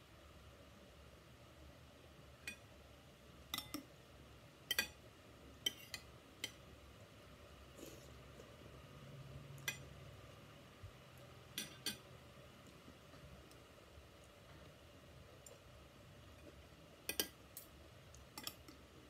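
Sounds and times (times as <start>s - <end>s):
cutlery clinking on plate: 3.6s - 3.8s, 11.6s - 12.0s.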